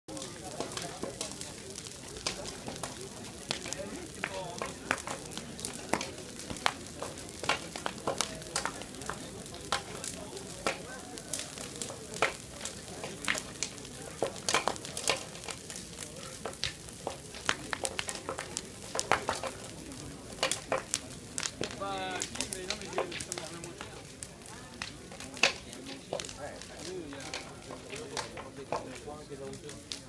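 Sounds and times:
bonfire crackling and popping: 0:00.1 - 0:30.0.

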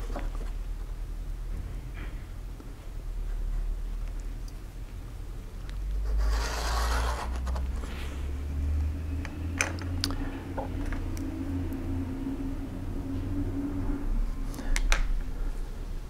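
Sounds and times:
steady low hum: 0:00.0 - 0:16.0
pen scratching on paper: 0:06.0 - 0:07.6
square scraping on paper: 0:06.0 - 0:08.2.

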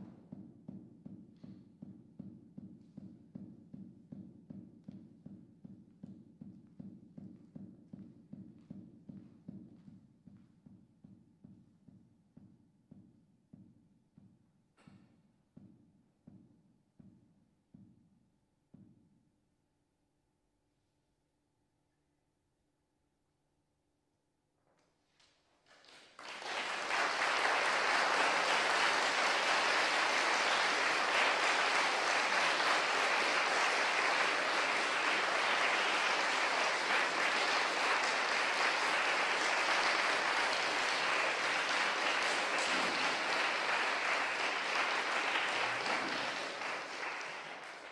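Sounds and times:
audience applauding: 0:25.7 - 0:47.9.

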